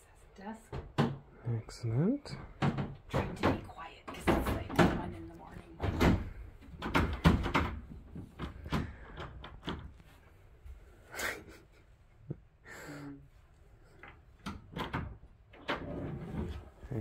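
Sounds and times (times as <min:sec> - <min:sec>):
furniture knocks and clicks: 0:02.5 - 0:10.2.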